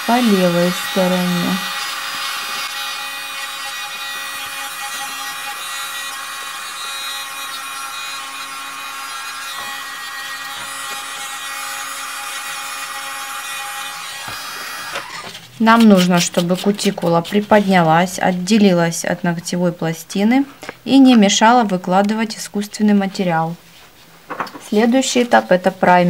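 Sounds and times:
electric nail drill whining: 0:00.0 - 0:15.4.

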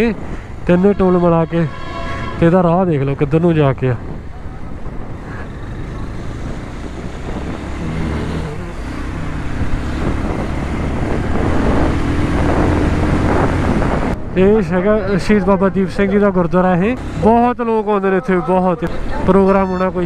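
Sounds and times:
road noise: 0:00.0 - 0:20.0
motorcycle engine: 0:04.3 - 0:14.5, 0:16.8 - 0:20.0.

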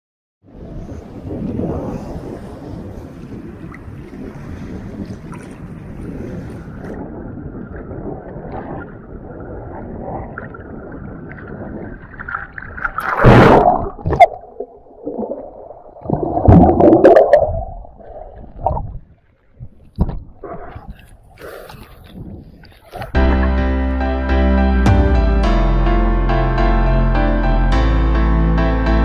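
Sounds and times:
muffled water sloshing and gurgling: 0:00.4 - 0:23.6
waves splashing: 0:00.5 - 0:07.8.

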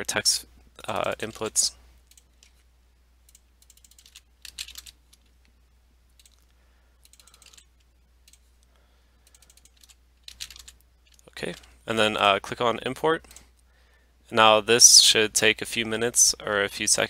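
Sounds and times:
low steady hum: 0:00.0 - 0:17.0
keyboard keys tapping: 0:03.3 - 0:05.0, 0:09.3 - 0:11.7.

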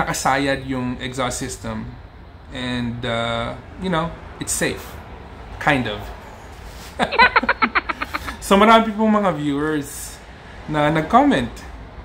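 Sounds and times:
man laughing: 0:07.0 - 0:08.4.

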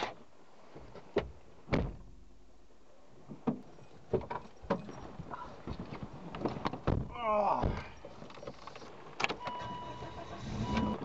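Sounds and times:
thuds of bags loaded in car: 0:01.1 - 0:02.2, 0:05.6 - 0:08.2
car door shutting: 0:09.2 - 0:11.0.

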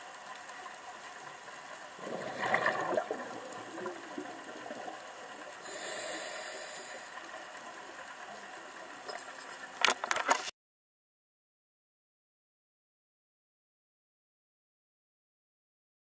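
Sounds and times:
underwater background: 0:00.0 - 0:10.5
regulator hissing on inhale: 0:05.5 - 0:07.6.

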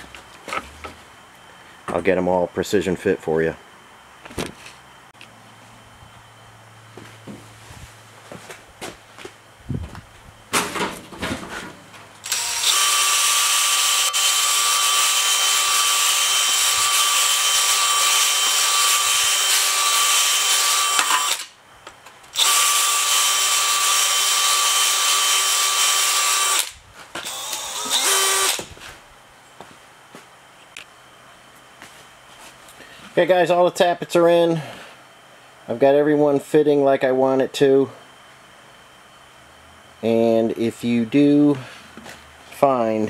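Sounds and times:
cordless drill whining: 0:12.2 - 0:21.5, 0:22.3 - 0:28.7.

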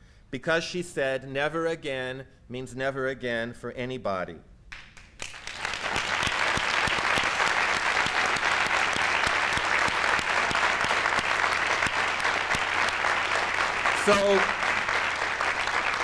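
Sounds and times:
large audience applauding: 0:05.0 - 0:16.0.

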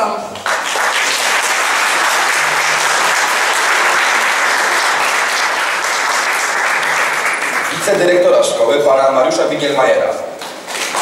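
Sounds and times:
audience applauding: 0:00.4 - 0:08.4, 0:10.8 - 0:11.0.

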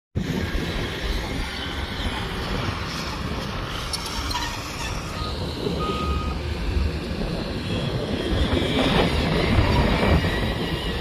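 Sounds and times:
diesel engines rumbling: 0:00.2 - 0:11.0
short beeps: 0:05.1 - 0:06.4.

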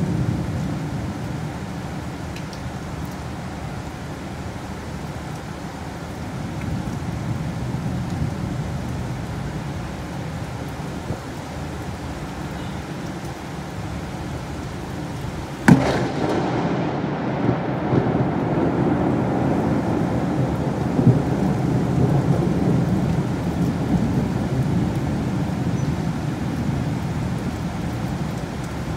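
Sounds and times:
heavy rain: 0:00.0 - 0:28.9
thunder crack and rumble: 0:15.6 - 0:25.7.

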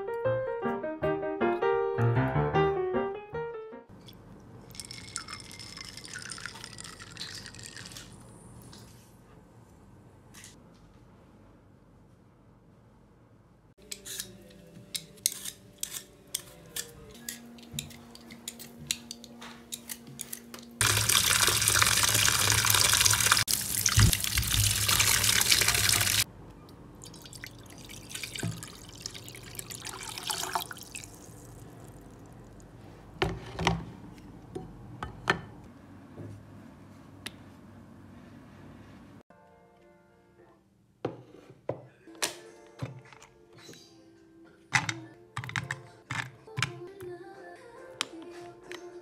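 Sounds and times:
tap water running into bowl: 0:20.8 - 0:26.2, 0:27.0 - 0:31.9.

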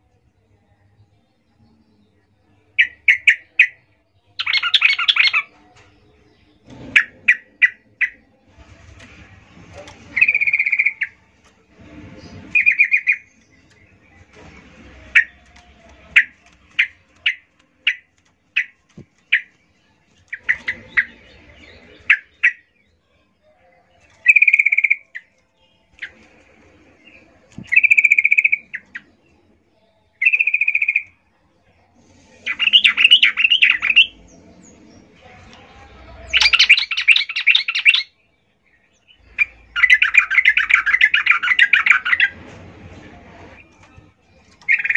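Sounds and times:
bird chirping and chattering: 0:04.4 - 0:05.5, 0:09.8 - 0:11.2, 0:12.4 - 0:13.9, 0:20.2 - 0:22.7, 0:27.6 - 0:29.1, 0:30.2 - 0:31.2, 0:32.4 - 0:34.8, 0:36.2 - 0:38.1, 0:39.2 - 0:42.4, 0:44.5 - 0:44.9.

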